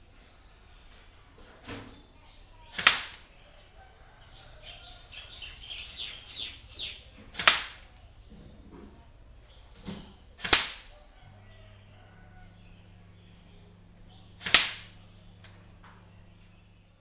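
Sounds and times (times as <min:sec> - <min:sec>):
airsoft rifle shots: 0:02.7 - 0:03.3, 0:07.3 - 0:07.9, 0:10.4 - 0:11.0, 0:14.4 - 0:15.1.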